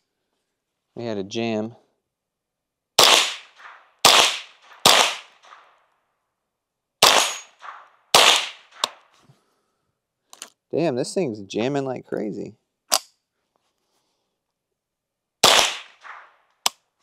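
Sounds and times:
gunshot echo: 0:03.0 - 0:05.8, 0:07.0 - 0:09.0, 0:15.4 - 0:16.5
rifle shots: 0:03.0 - 0:05.8, 0:07.0 - 0:09.1, 0:15.4 - 0:16.7.

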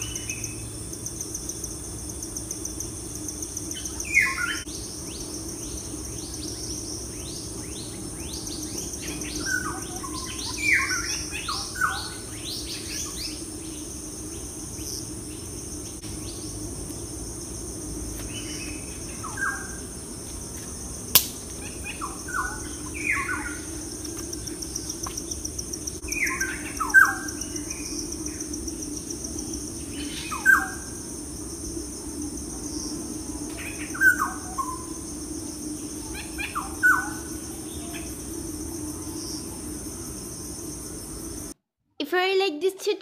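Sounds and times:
high-pitched insect drone: 0:00.0 - 0:41.6
low hum: 0:00.0 - 0:41.6
sharp click: 0:21.1 - 0:21.4.

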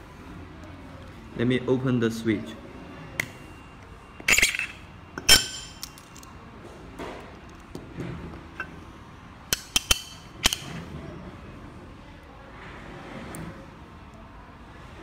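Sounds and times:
metallic clicks and clinks: 0:04.3 - 0:06.3.

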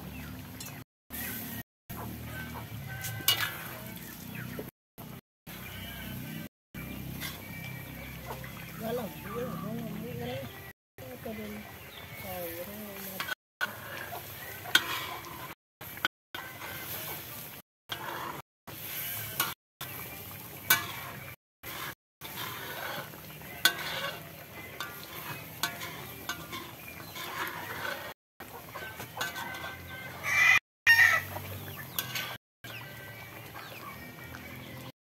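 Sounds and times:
metal spatula scraping wok: 0:00.6 - 0:04.7, 0:06.8 - 0:09.6, 0:12.1 - 0:32.4
chickens clucking: 0:08.0 - 0:09.6, 0:13.2 - 0:15.6, 0:24.6 - 0:32.9
rooster crowing loudly: 0:30.2 - 0:31.3.

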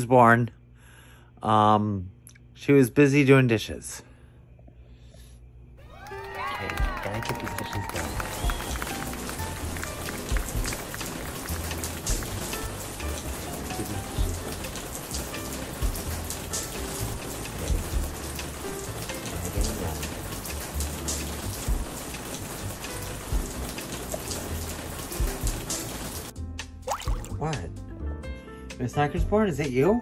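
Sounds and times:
tap water running into sink: 0:08.2 - 0:26.3, 0:26.9 - 0:27.4.

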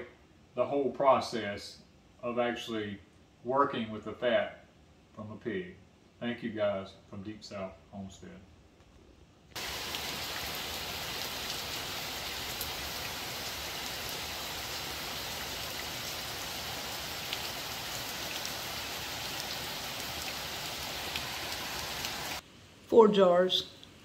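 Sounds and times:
steady rain: 0:09.5 - 0:24.0.

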